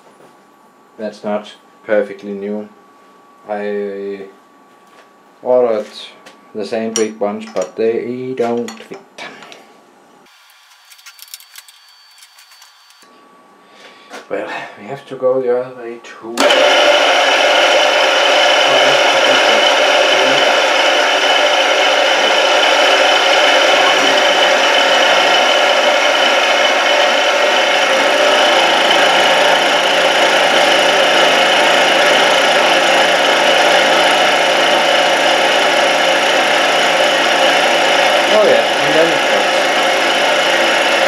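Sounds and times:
milling machine cutting metal: 16.4s - 41.0s.

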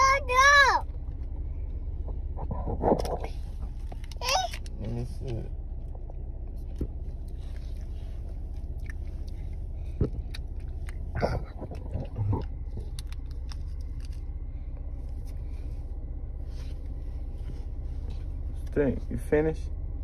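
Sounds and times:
child murmuring: 0.0s - 0.8s
car cabin hum: 0.0s - 20.0s
child smacking mouth sounds: 10.0s - 13.5s.

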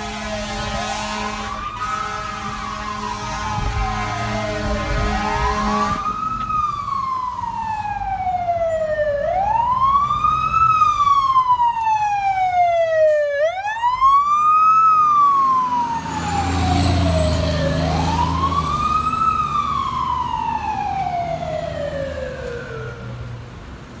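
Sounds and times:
horn blast: 0.0s - 6.2s
fire engine siren wailing: 0.0s - 23.6s
truck engine: 0.0s - 24.0s.

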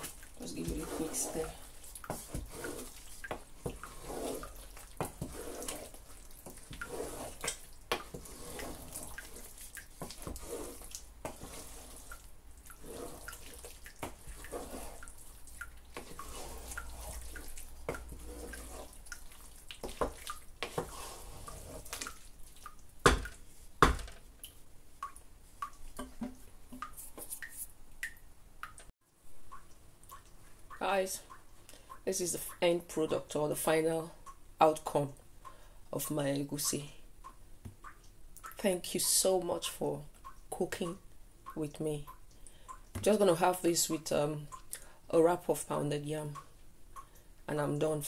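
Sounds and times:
spatula stirring thick soup: 0.0s - 24.0s.

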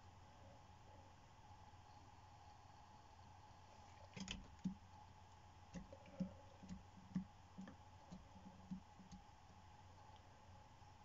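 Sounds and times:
faint steady hum: 0.0s - 11.0s
faint irregular clicks and taps: 4.0s - 10.3s.

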